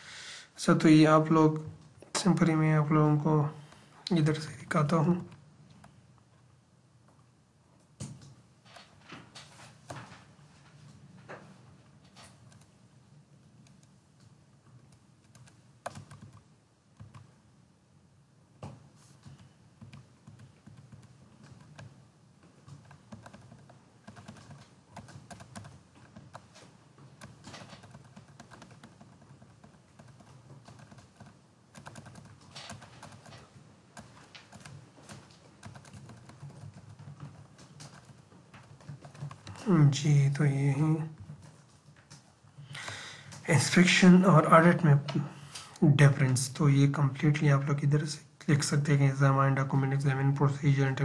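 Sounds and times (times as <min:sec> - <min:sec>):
low background hum: 0:00.0 - 0:51.0
keyboard and mouse clicks: 0:12.1 - 0:12.7, 0:14.8 - 0:17.3, 0:19.3 - 0:22.0, 0:22.6 - 0:39.7.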